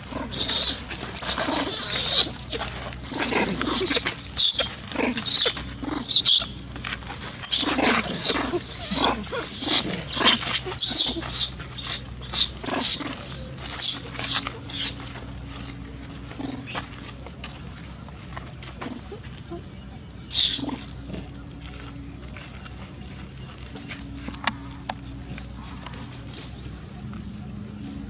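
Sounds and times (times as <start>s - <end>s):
baby monkey screaming: 0.1s - 6.6s, 7.4s - 15.8s, 16.5s - 16.9s, 20.3s - 20.8s.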